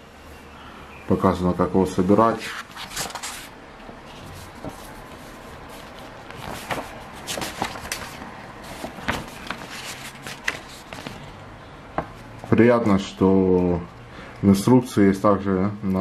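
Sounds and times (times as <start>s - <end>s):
paper pages rustling: 2.3s - 11.4s
paper crackles: 2.4s - 3.5s, 4.1s - 11.3s.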